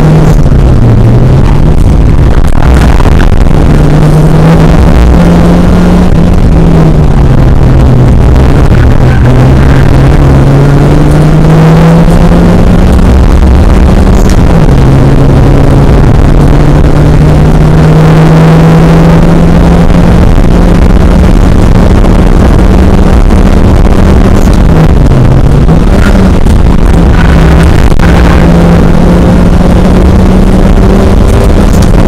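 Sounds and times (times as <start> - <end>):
car engine under hard driving: 0.0 - 32.0.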